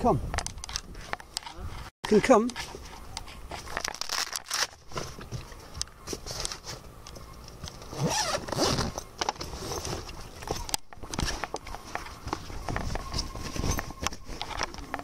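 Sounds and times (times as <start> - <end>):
zipper on fabric bag: 7.9 - 9.0.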